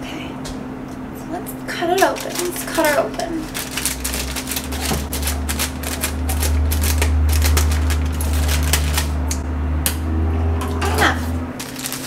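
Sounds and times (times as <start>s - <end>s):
steady low hum: 0.0s - 12.0s
plastic crinkling: 1.8s - 9.4s, 11.6s - 12.0s
scissors snipping plastic bag: 2.0s - 9.4s, 11.6s - 12.0s.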